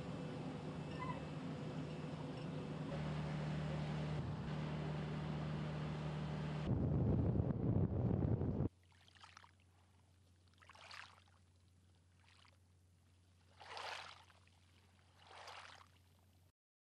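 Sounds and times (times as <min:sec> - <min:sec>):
low steady hum: 0:00.0 - 0:08.7
faint water swishes: 0:08.7 - 0:16.5.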